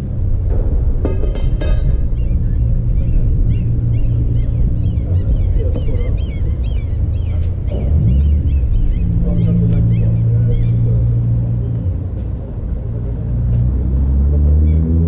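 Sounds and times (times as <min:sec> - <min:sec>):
loud steady low rumble: 0:00.0 - 0:15.0
small birds chirping: 0:01.7 - 0:13.3.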